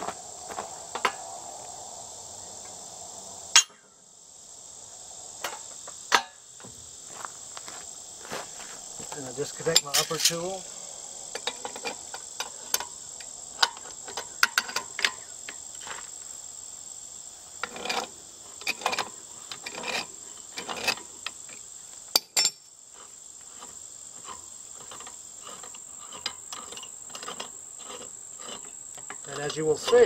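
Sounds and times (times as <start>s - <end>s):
crickets chirping: 0.0s - 30.0s
sharp metal clanks: 3.5s - 3.9s, 5.4s - 6.4s, 9.6s - 10.5s, 22.1s - 22.7s
wrenches clinking on metal pipe: 3.6s - 3.8s, 9.7s - 10.5s, 22.2s - 22.6s, 23.6s - 30.0s
metal rasping strokes: 17.6s - 21.2s, 22.9s - 30.0s.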